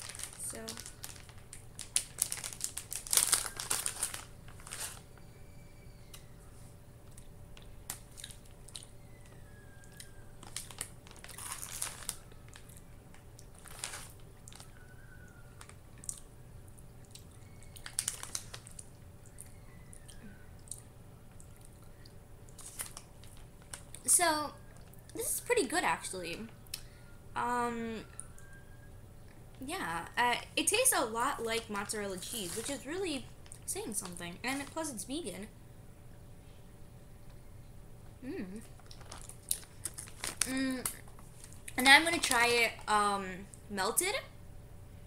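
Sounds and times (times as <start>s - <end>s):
plastic bag crinkling: 0.0s - 5.4s, 7.1s - 16.2s, 17.4s - 19.6s, 22.5s - 26.1s, 30.7s - 35.1s, 38.6s - 42.9s
quiet chewing: 7.0s - 24.0s, 38.0s - 41.8s.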